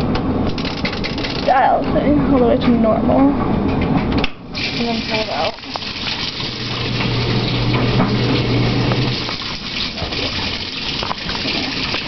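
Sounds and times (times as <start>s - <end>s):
low machine hum: 0.0s - 12.0s
water gushing into washing machine: 4.5s - 12.0s.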